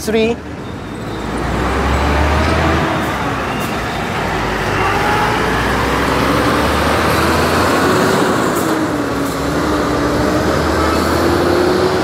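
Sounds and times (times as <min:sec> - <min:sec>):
street traffic: 0:00.0 - 0:12.0.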